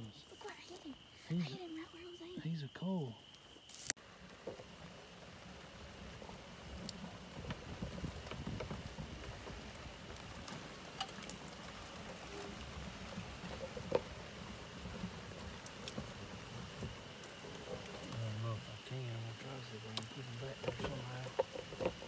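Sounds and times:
tyres crackling over dry grass: 0.0 - 22.0.

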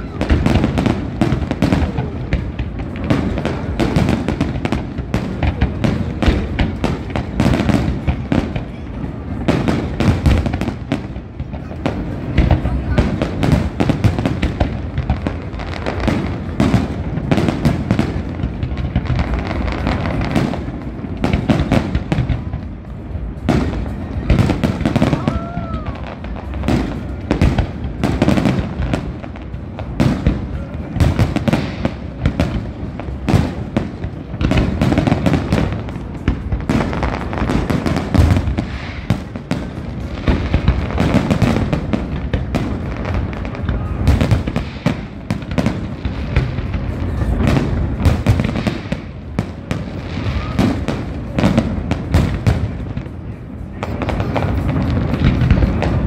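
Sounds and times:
fireworks bangs and crackles: 0.0 - 56.0.

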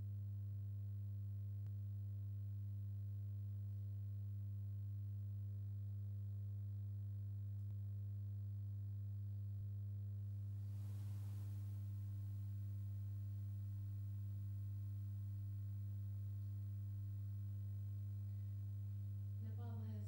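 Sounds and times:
low electrical hum: 0.0 - 20.0
soft hiss: 10.1 - 20.0.

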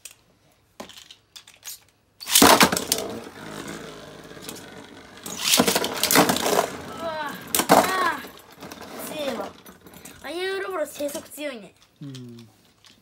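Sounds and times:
spinning top clattering into stadium: 2.2 - 10.2
spinning top whirring: 2.2 - 11.2.

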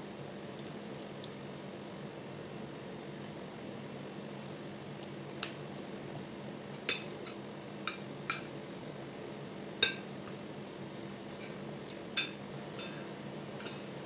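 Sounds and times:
cutlery clinking on plate: 12.2 - 13.9.

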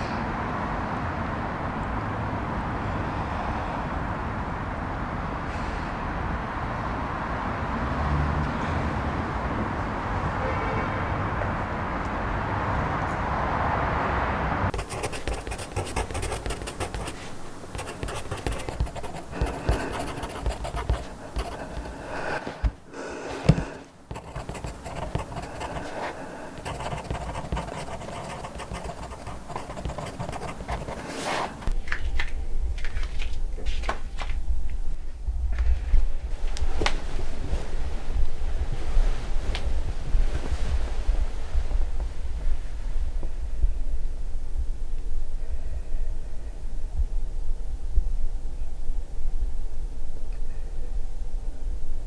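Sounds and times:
steady noisy hum: 14.6 - 52.0
scratching and rustling: 14.7 - 22.8, 23.4 - 31.8
person panting: 18.5 - 24.0, 24.7 - 26.7.

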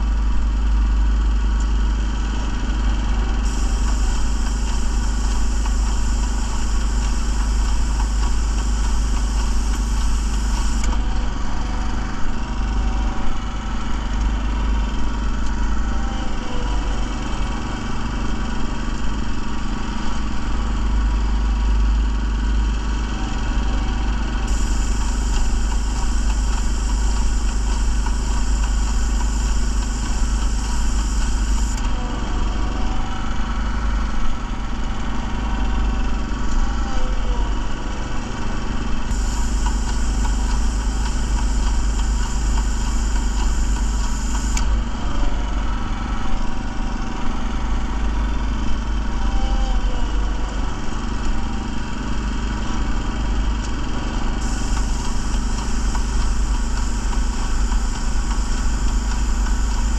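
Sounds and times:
small engine running: 0.0 - 59.9
paint spraying hiss: 3.4 - 10.9, 24.5 - 31.8, 39.1 - 44.6, 54.4 - 59.9.

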